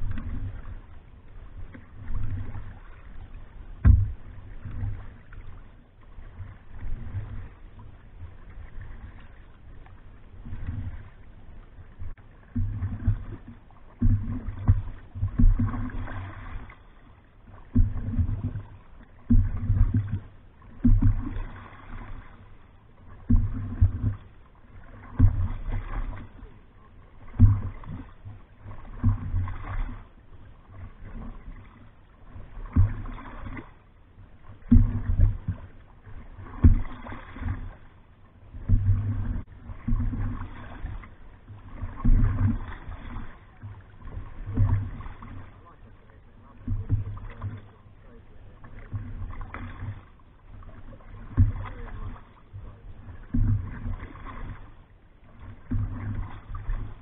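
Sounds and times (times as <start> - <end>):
water slapping against canoe: 0.0 - 57.0.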